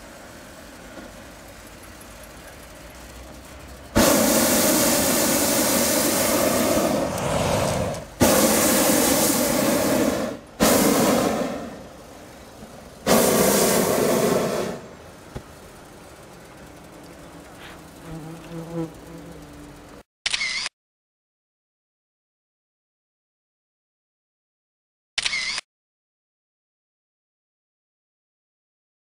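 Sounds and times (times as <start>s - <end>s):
propane burner blasts: 0.0s - 20.0s.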